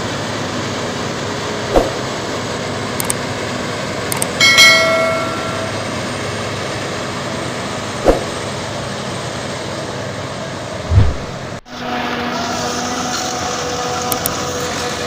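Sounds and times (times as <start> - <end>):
forage harvester running: 0.0 - 15.0
sharp knock: 1.7 - 2.1
short tone: 4.4 - 6.0
low thump: 10.9 - 11.5.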